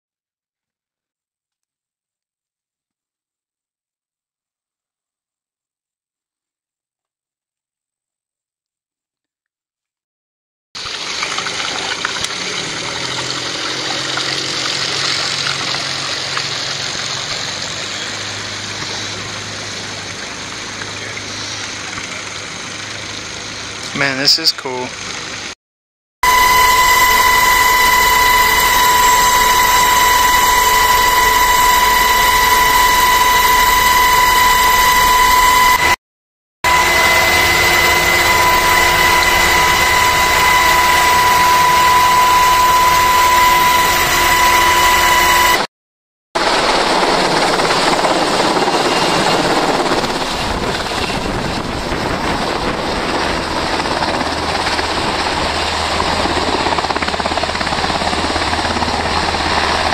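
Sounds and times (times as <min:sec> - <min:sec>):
rotor wash rushing: 0:10.8 - 0:25.6
helicopter engine and rotor noise: 0:11.2 - 0:25.6, 0:26.2 - 0:36.0, 0:36.7 - 0:45.6, 0:46.4 - 0:59.9
high-pitched whine: 0:26.2 - 0:36.0, 0:36.7 - 0:45.7.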